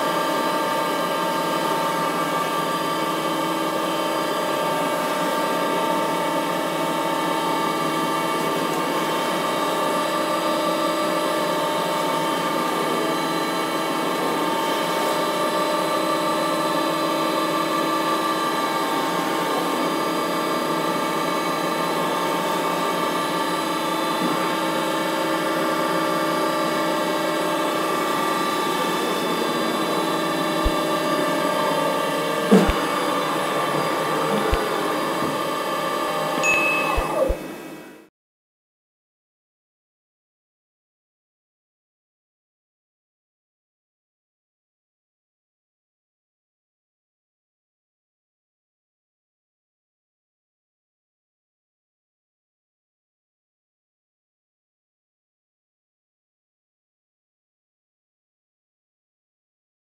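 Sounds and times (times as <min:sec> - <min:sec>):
milling machine spindle whine: 0:00.1 - 0:38.0
end mill cutting lettuce: 0:32.4 - 0:35.5.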